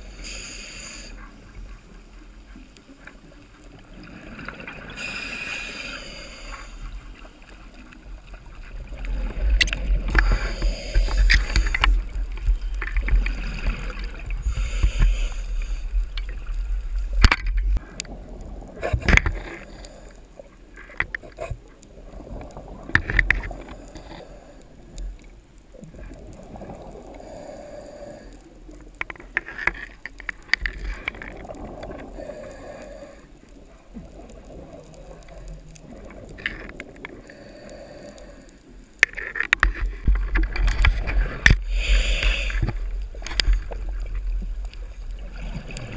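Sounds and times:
soft swells of noise: 0:00.0 - 0:17.2
underwater water rumble: 0:00.0 - 0:45.9.

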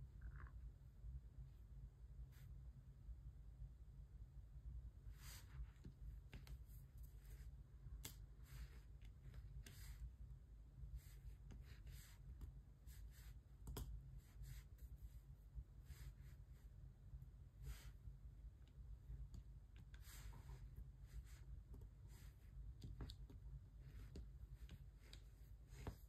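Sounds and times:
low steady hum: 0:00.0 - 0:26.0
pen ticks and scratchy rustles: 0:22.6 - 0:26.0.

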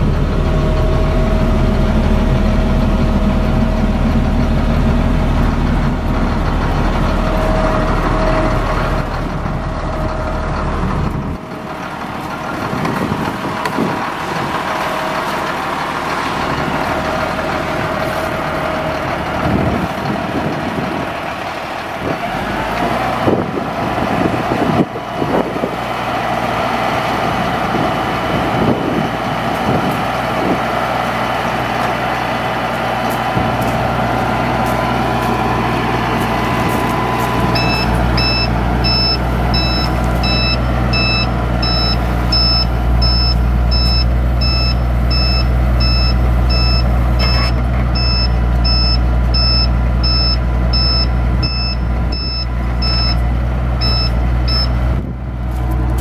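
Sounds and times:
truck engine running: 0:00.0 - 0:56.0
warning alarm beeping: 0:37.5 - 0:53.2, 0:53.8 - 0:54.8.

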